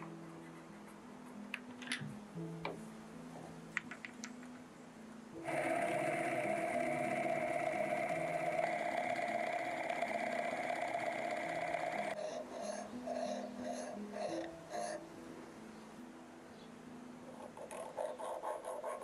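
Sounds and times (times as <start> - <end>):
soft background music: 0.0 - 19.0
milling spindle whine: 5.4 - 12.8.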